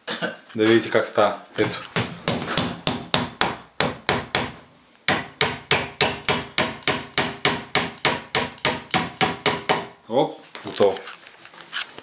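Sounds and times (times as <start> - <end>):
metal-on-metal hammering strikes: 1.9 - 10.0.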